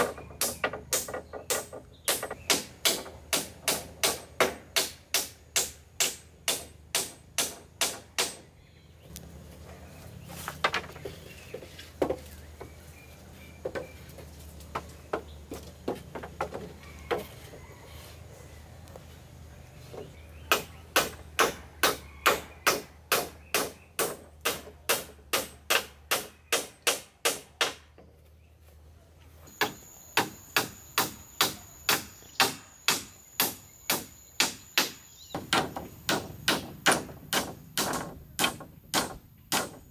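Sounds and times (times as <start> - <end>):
rapid regular hammering: 0.0 - 8.5, 20.4 - 28.0, 29.6 - 39.9.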